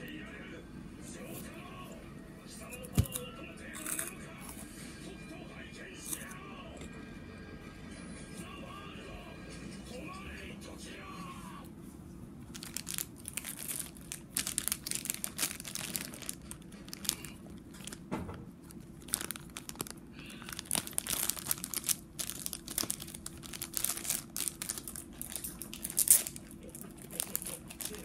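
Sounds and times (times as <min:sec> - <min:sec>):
plastic candy bag crinkling: 0:12.4 - 0:28.0.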